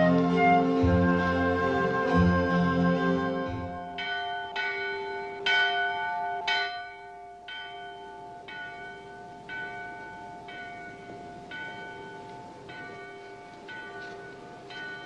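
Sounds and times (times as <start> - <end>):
church bell tolling: 3.6 - 15.0.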